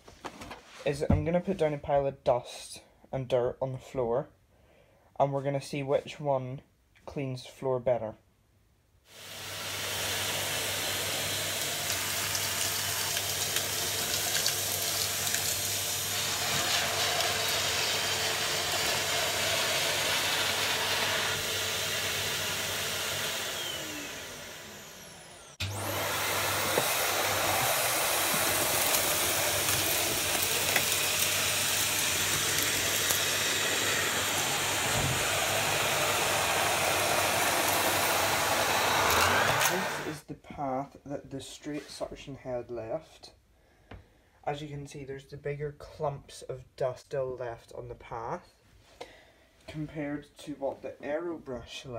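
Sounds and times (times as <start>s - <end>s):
vacuum cleaner on carpet: 9.1s - 40.2s.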